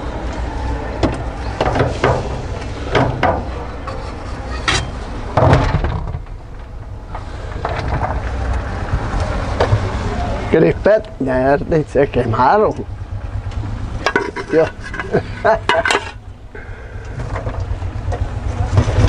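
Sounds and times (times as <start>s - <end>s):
steady low rumble: 0.0s - 19.0s
metal pot knocking and clattering: 14.1s - 16.2s.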